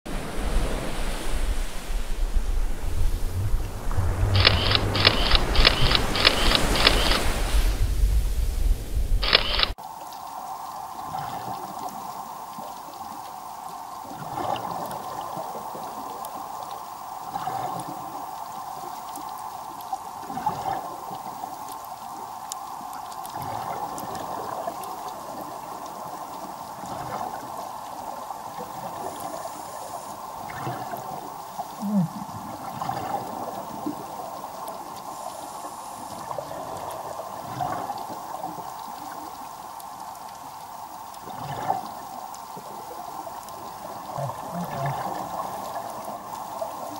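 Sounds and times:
steady watery hiss: 0.1 - 46.9
underwater bubbles gurgling: 9.8 - 46.9.

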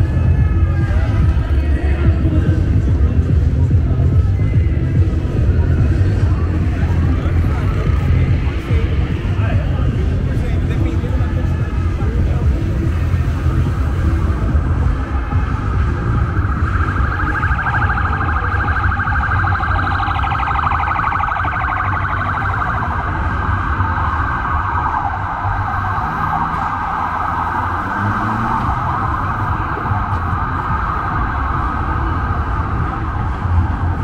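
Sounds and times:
city traffic rumble: 0.0 - 34.0
siren warbling yelp: 16.2 - 32.4.

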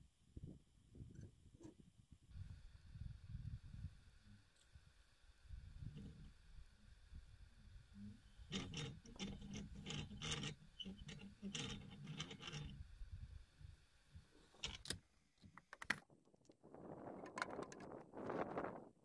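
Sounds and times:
rope creaking over well pulley: 8.0 - 12.9.

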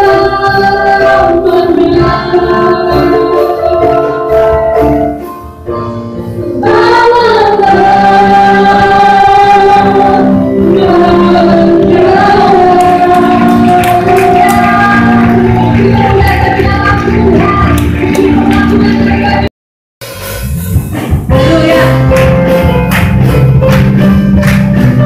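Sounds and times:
woman singing: 0.0 - 4.2, 6.6 - 19.5, 21.3 - 22.2
congregation singing worship song: 0.0 - 5.3, 6.5 - 19.5
keyboard accompaniment: 0.0 - 25.0.

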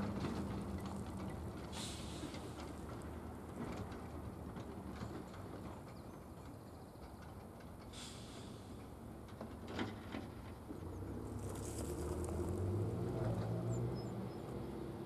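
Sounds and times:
distant train rumble: 0.0 - 15.0.

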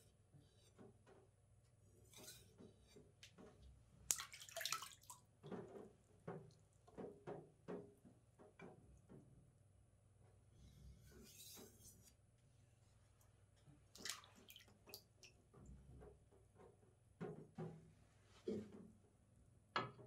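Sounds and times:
water dripping and splashing: 4.0 - 7.2, 13.9 - 15.6.

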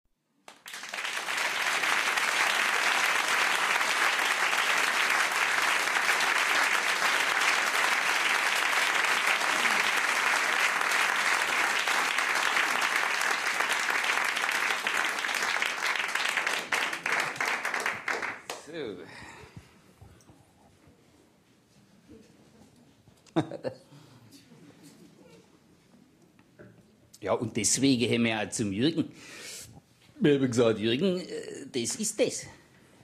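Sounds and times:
audience applauding: 0.4 - 18.8.

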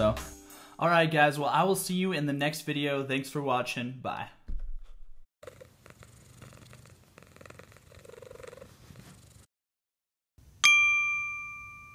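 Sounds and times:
cat purring: 5.4 - 9.5
electronic ding chime: 10.6 - 11.9.

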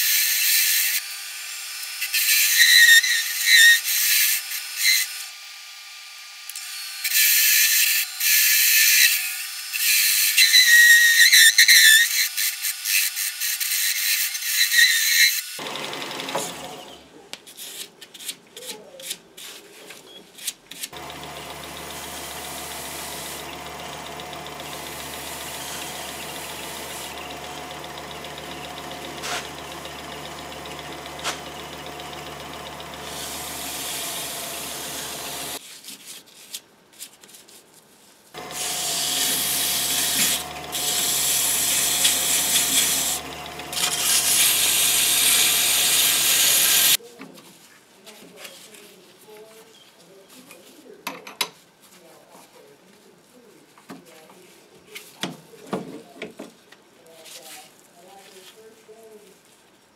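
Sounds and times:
lathe motor humming: 15.6 - 17.0, 21.0 - 35.6, 38.4 - 47.0.

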